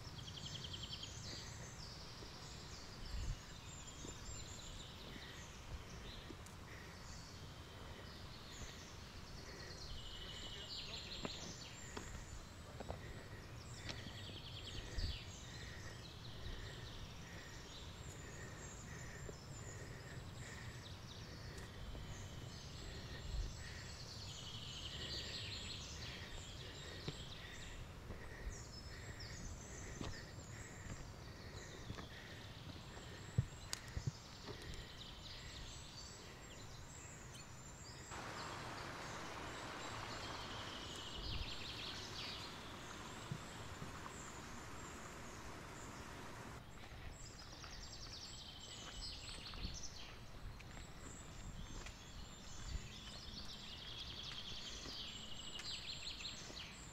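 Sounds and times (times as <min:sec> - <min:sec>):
birds singing and chirping: 0:00.0 - 0:56.9
steady hiss: 0:38.1 - 0:46.6.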